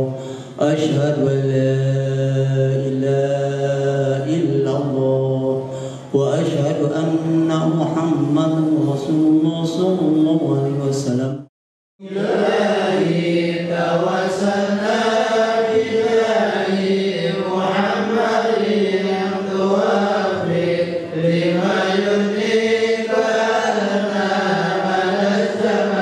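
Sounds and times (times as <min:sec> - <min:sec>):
man chanting into a microphone: 0:00.0 - 0:12.2.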